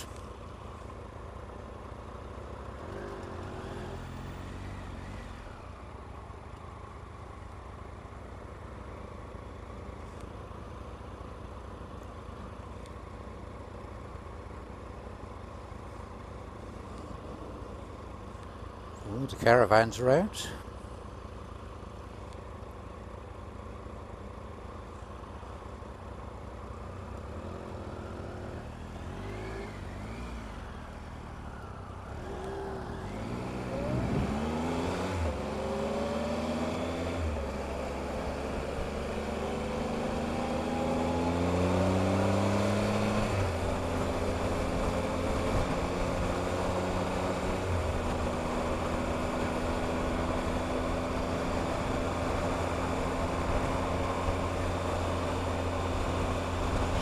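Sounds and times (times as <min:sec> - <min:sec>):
wind and road noise: 0:00.0 - 0:57.0
motorcycle engine accelerating: 0:27.2 - 0:57.0.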